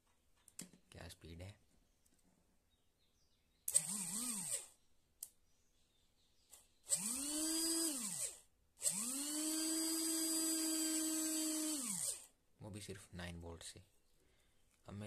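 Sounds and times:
small electric motor whining: 3.7s - 4.8s, 6.9s - 12.3s.

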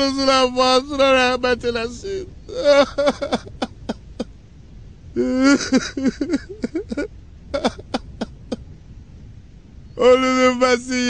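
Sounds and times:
man speaking: 0.0s - 2.9s, 10.0s - 11.0s.

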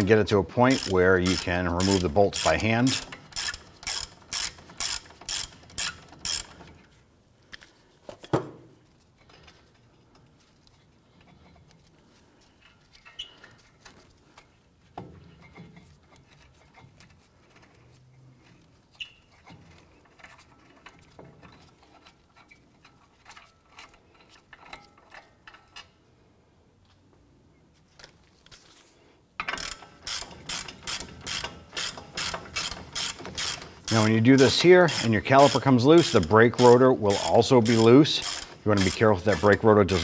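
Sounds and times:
ratchet wrench clicking: 0.7s - 6.8s, 29.4s - 40.0s.

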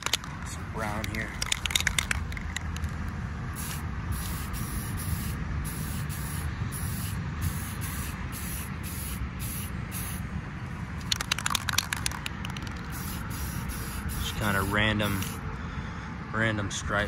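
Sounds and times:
aerosol spray can hissing: 3.6s - 10.2s, 11.0s - 15.4s.

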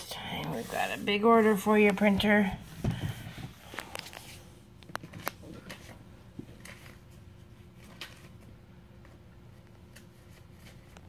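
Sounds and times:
paper tapping and rustling: 1.8s - 7.1s, 7.8s - 11.0s.

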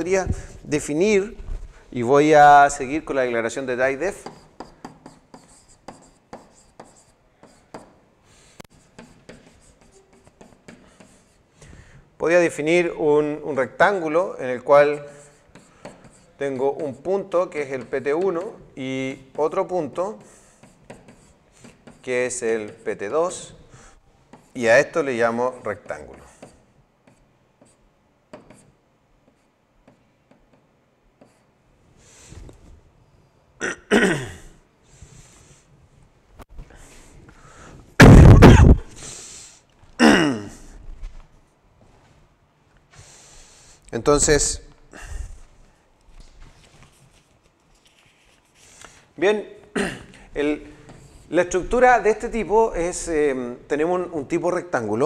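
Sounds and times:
stylus scratching and tapping: 3.9s - 8.0s, 8.6s - 11.4s, 14.8s - 18.6s, 19.2s - 23.5s, 24.3s - 31.5s
throat clearing: 33.6s - 34.6s, 38.2s - 39.0s, 40.0s - 40.7s, 49.7s - 50.2s.

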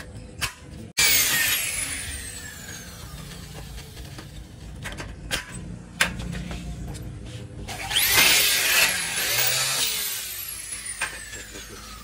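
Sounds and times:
power tool whine winding down: 1.0s - 4.0s, 7.7s - 12.0s.

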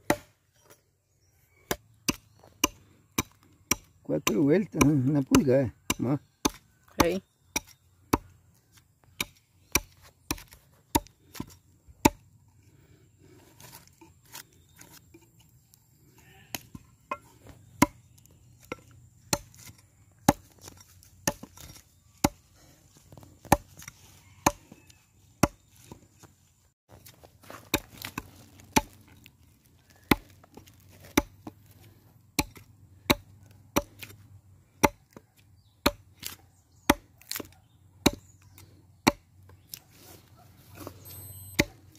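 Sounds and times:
hatchet chopping wood: 0.0s - 0.4s, 1.6s - 8.4s, 9.0s - 12.3s, 16.5s - 22.5s, 23.1s - 24.8s, 25.4s - 25.7s, 27.5s - 29.2s, 29.9s - 39.8s, 40.8s - 41.9s.

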